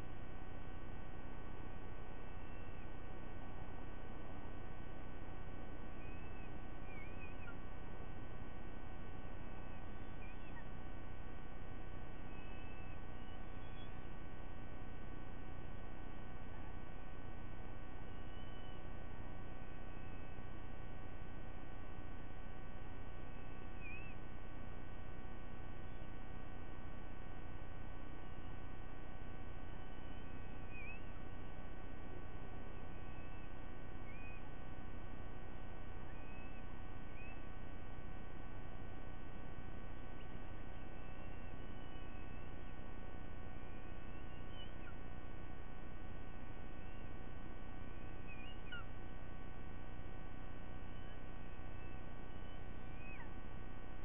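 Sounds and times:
electrical mains hum: 0.0 - 54.0
faint high chirps: 2.1 - 3.0, 5.8 - 7.8, 9.3 - 10.8, 12.0 - 14.2, 18.0 - 19.0, 19.6 - 20.6, 23.1 - 24.3, 29.5 - 31.5, 32.5 - 35.0, 35.9 - 38.4, 39.9 - 49.2, 50.6 - 53.5.

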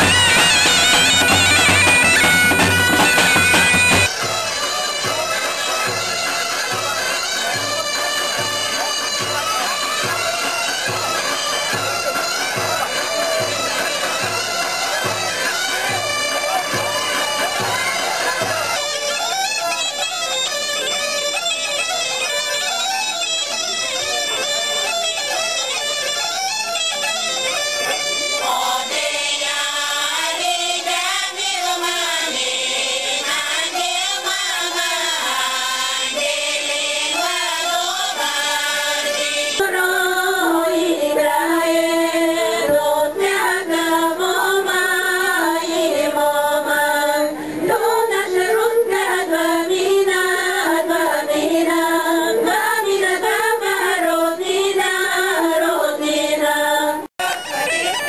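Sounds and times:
women's folk choir singing: 0.0 - 4.2, 27.9 - 57.4
women's group singing: 28.2 - 57.1.

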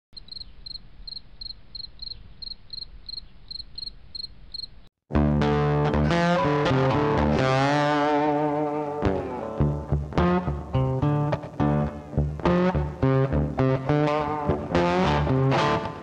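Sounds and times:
guitar-led intro music: 5.1 - 16.0.

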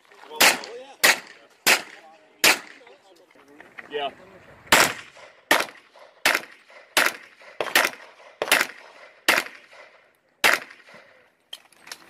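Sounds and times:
handgun shots with echo: 0.4 - 2.8, 4.7 - 11.0.

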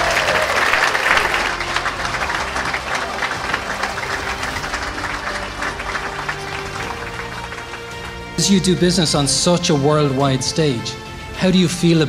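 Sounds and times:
audience applauding: 0.0 - 9.2
music playing: 0.0 - 12.0.

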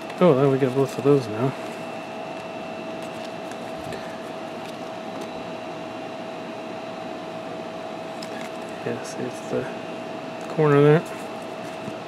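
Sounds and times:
machine hum with whine: 0.0 - 12.0.

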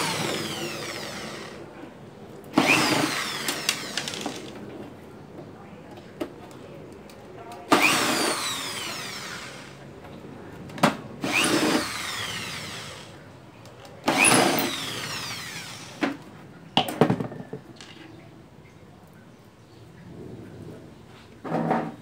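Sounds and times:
electric drill motor whine: 0.0 - 1.6, 2.6 - 4.5, 7.7 - 9.8, 11.2 - 13.1, 14.1 - 16.0
drill handling clicks and knocks: 2.6 - 4.6.

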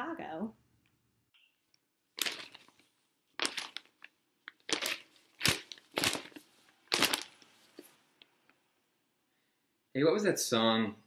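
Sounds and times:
paper rustling: 2.2 - 8.3.

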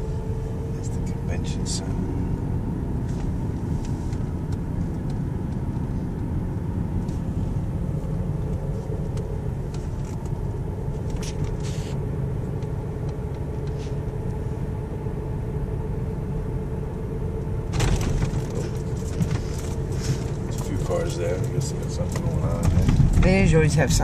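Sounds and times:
car road and engine rumble: 0.0 - 24.0.

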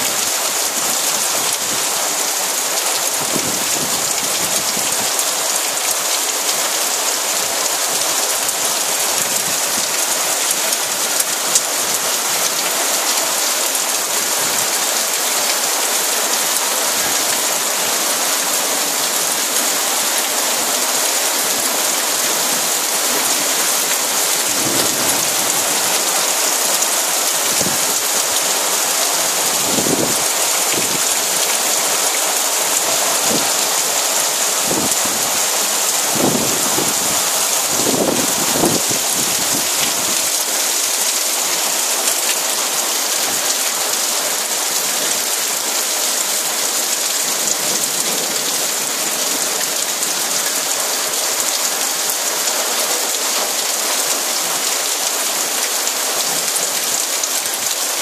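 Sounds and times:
heavy rain pouring: 0.0 - 58.0.

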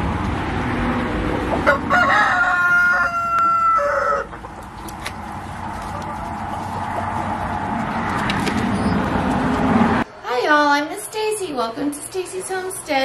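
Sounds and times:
rooster crowing: 1.6 - 4.5.

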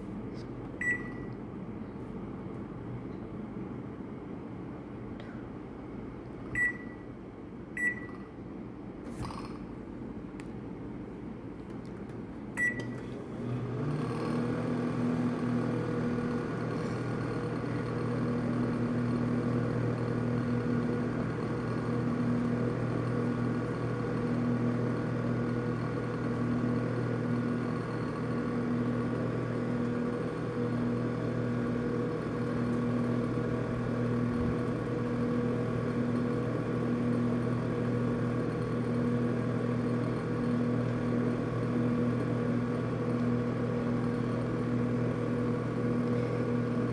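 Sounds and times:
microwave oven humming: 0.0 - 46.9.

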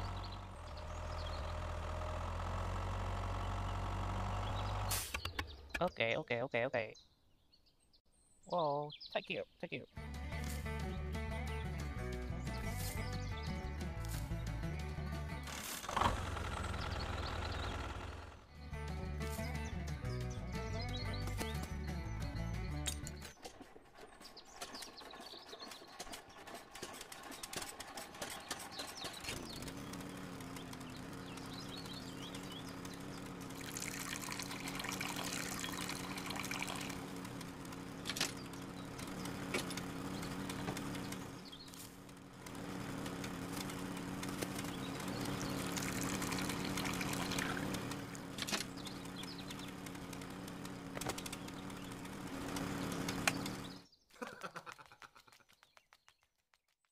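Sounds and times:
small electric motor running: 15.5 - 18.4, 26.6 - 53.8
liquid pouring and splashing: 33.7 - 36.9.

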